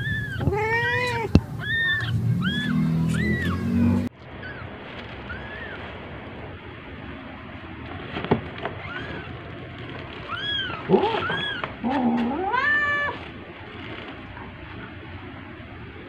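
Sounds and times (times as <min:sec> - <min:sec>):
kittens mewing: 0:00.0 - 0:05.9, 0:08.8 - 0:09.5, 0:10.1 - 0:13.5.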